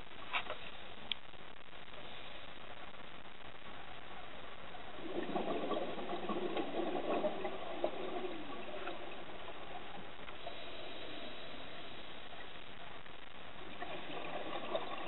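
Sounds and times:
diver's bubbles gurgling: 0:04.9 - 0:10.3, 0:13.5 - 0:15.0.

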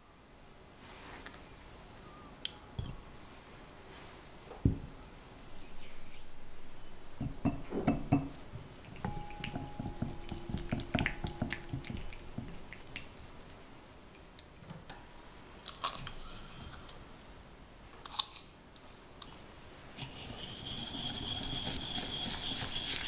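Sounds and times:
whisk beating in glass bowl: 0:07.2 - 0:13.0, 0:20.0 - 0:23.0.

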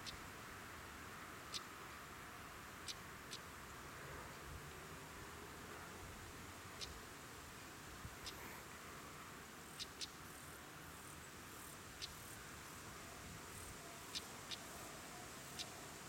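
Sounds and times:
faint steady hiss: 0:00.0 - 0:16.0
bird clicking alarm calls: 0:09.8 - 0:10.2.

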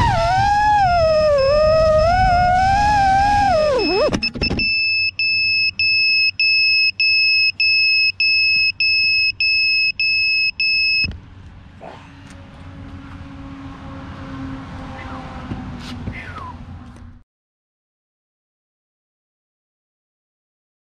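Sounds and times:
high buzzer beeps: 0:01.0 - 0:11.1.

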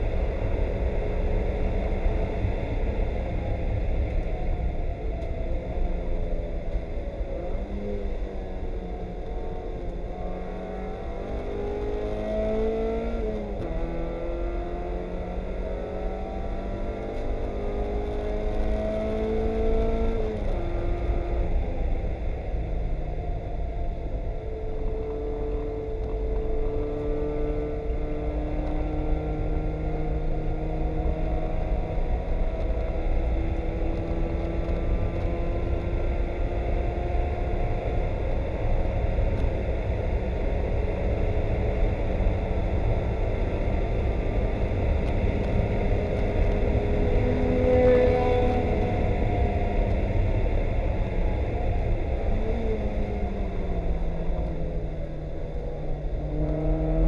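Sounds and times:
car engine revving: 0:07.3 - 0:21.9.

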